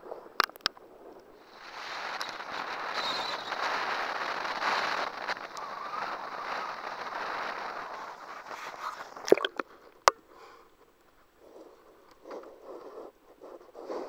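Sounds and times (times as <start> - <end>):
shallow water rushing: 9.1 - 9.8.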